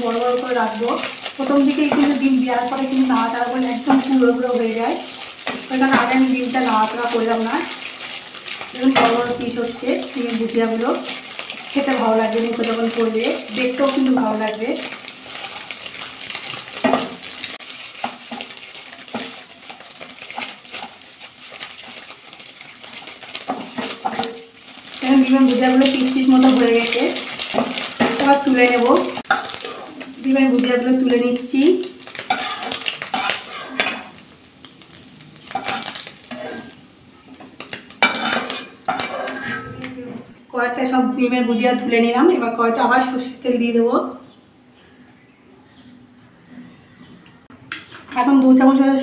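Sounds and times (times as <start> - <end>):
eggs sizzling in oil: 0.0 - 40.4
spatula scraping a pan: 14.8 - 24.4, 25.9 - 30.1, 32.1 - 34.2, 35.4 - 37.4, 38.0 - 40.3
metal spoon scraping a wok: 29.3 - 30.0, 32.2 - 34.2, 35.4 - 36.8, 38.0 - 40.3.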